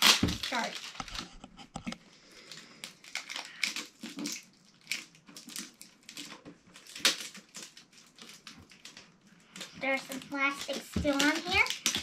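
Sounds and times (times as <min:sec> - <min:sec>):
sharp crackle: 0:00.0 - 0:01.3
plastic film crinkling: 0:00.0 - 0:12.0.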